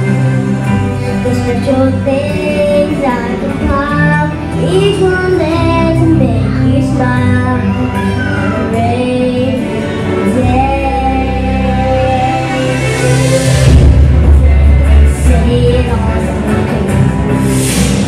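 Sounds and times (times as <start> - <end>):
instrumental accompaniment: 0.0 - 18.0
child singing into a microphone: 1.2 - 12.9, 15.1 - 16.1.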